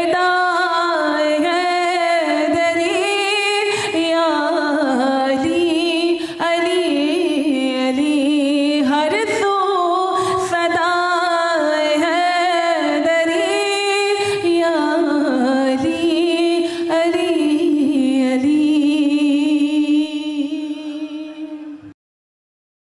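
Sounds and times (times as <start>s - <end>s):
woman singing unaccompanied: 0.0s - 21.9s.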